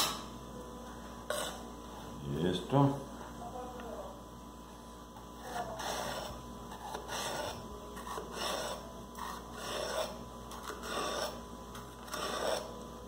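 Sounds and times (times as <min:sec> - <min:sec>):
knife slicing pepper on wooden board: 0:12.0 - 0:12.7.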